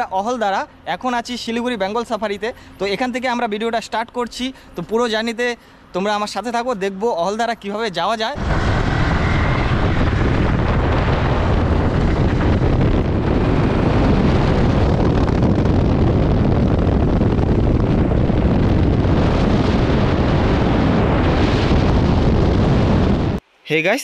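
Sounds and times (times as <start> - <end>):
motorcycle road noise: 8.2 - 23.4
wind buffeting microphone: 8.3 - 23.4.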